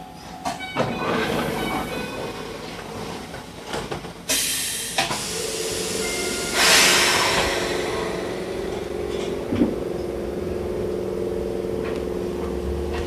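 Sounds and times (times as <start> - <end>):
train air system hissing: 4.2 - 9.5.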